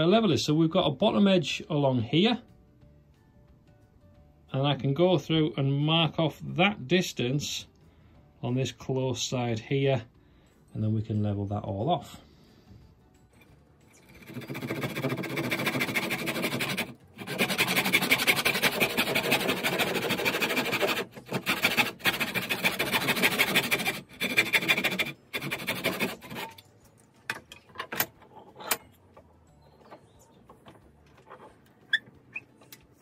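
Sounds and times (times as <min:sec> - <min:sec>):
hand saw cutting wood: 0:14.0 - 0:26.6.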